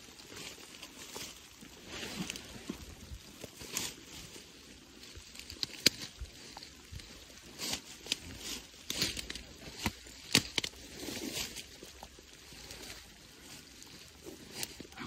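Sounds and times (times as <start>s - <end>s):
footsteps through brush and grass: 0.0s - 15.0s
sharp clicks and snaps: 5.4s - 6.2s, 8.9s - 10.8s.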